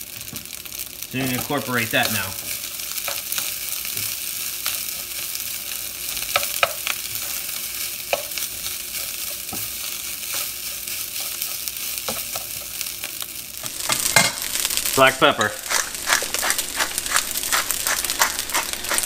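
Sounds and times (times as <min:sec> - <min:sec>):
rice sizzling in oil: 0:00.0 - 0:19.0
spatula tapping and scraping pan: 0:06.2 - 0:07.4, 0:08.1 - 0:10.6, 0:13.6 - 0:19.0.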